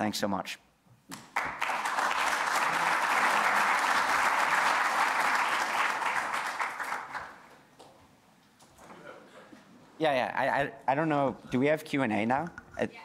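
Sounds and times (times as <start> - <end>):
audience applauding: 1.2 - 7.5.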